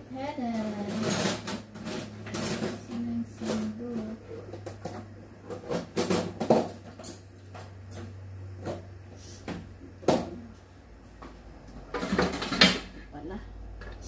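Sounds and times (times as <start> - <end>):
low steady hum: 0.0 - 14.0
kitchen utensils clattering: 0.4 - 8.9, 11.8 - 13.0.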